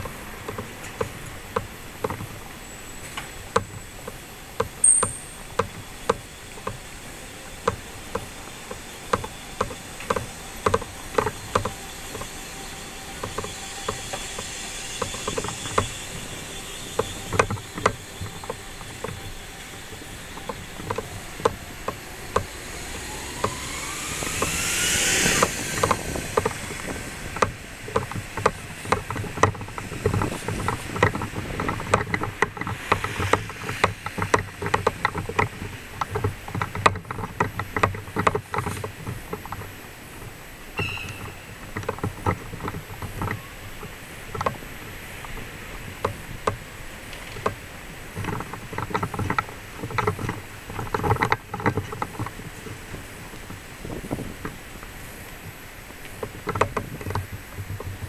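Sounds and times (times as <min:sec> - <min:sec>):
passing vehicle whine: 0:00.0 - 0:48.5.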